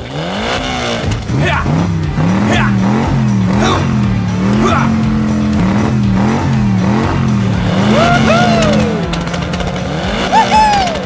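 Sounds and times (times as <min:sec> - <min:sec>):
background music: 0:00.0 - 0:11.0
car engine sound effect: 0:00.0 - 0:11.0
squealing glides: 0:02.2 - 0:11.0.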